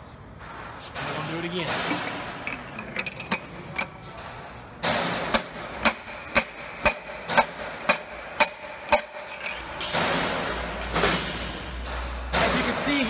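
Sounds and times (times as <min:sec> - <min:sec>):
sharp ringing metal knocks: 0:04.8 - 0:13.0.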